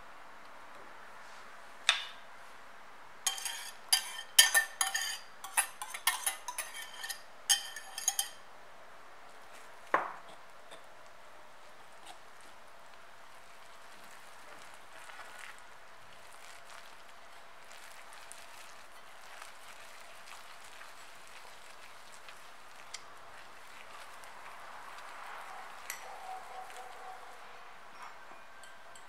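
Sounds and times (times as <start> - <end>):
whisk stirring wet dough: 3.3 - 8.4, 11.6 - 27.5.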